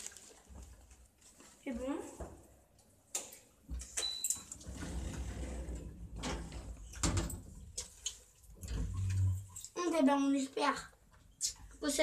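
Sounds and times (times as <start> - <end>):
lift doors sliding: 4.6 - 6.7.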